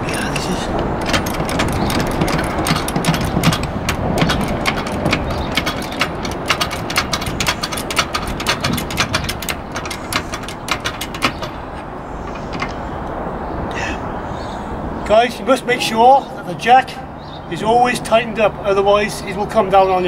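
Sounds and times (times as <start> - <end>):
trolley jack clicks and rattles: 0.0 - 13.0.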